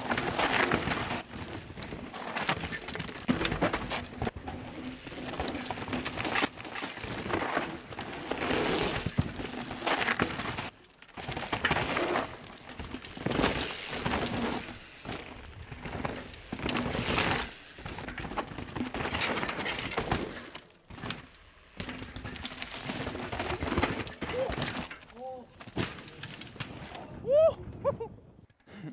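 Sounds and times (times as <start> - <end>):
bike tyres crunching over dirt: 0.0 - 27.4.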